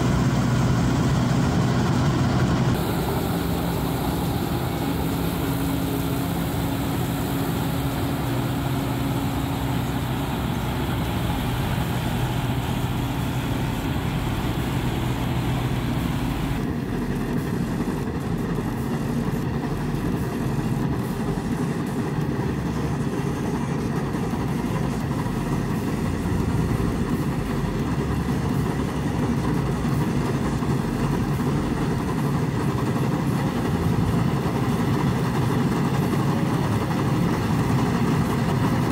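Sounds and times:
combine harvester engine hum: 0.0 - 38.9
high hiss: 2.8 - 16.6.

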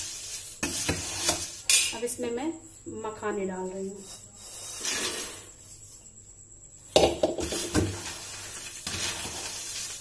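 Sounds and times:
dry rustle of snack mix: 7.5 - 10.0.

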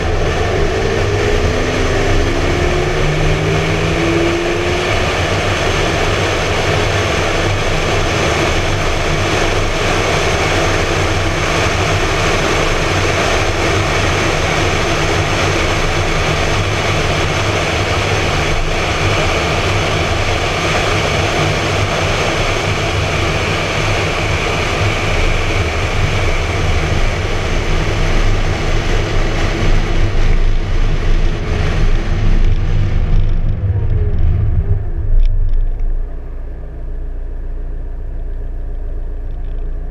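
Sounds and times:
wind rushing over camera: 0.0 - 37.5
car engine running: 0.0 - 39.9
road noise: 0.0 - 39.9.

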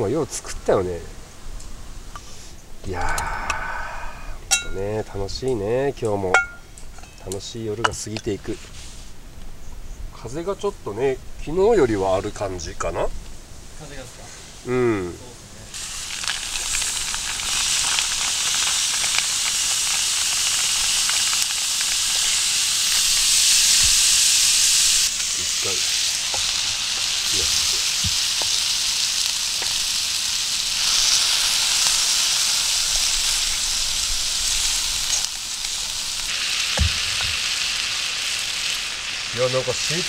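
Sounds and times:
food sizzling in a frying pan: 13.4 - 40.0.

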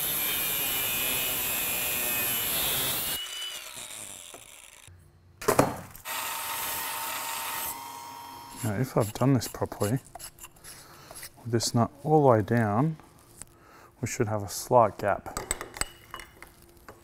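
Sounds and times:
angle grinder cutting steel: 0.0 - 4.9, 6.1 - 10.0
bench grinder grinding metal: 0.0 - 4.9, 6.1 - 9.9.

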